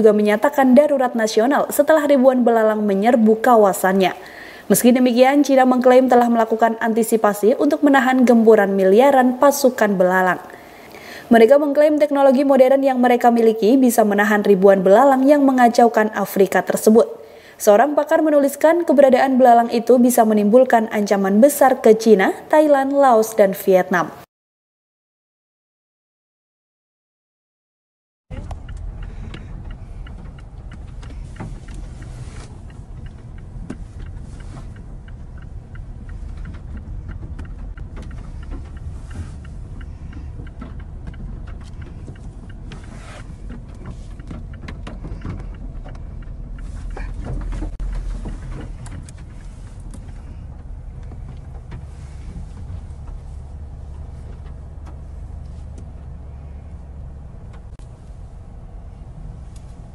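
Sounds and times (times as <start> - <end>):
sharp ticks and taps: 28.3 - 51.9
car driving rumble: 28.3 - 59.9.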